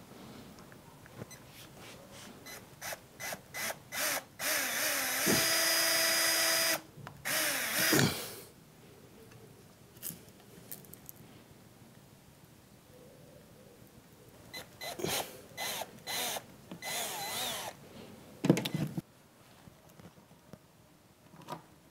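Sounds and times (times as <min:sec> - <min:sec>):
cordless drill drilling plastic: 0:02.5 - 0:08.0, 0:14.6 - 0:17.8.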